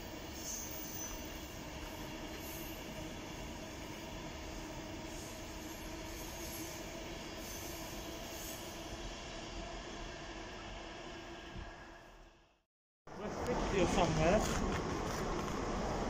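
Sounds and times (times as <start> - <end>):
train rumbling on tracks: 0.0 - 12.1, 13.1 - 16.0.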